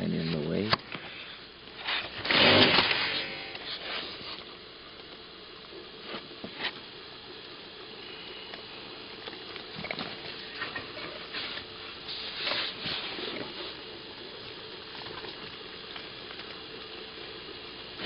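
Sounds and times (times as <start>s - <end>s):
steady hiss: 0.0s - 18.0s.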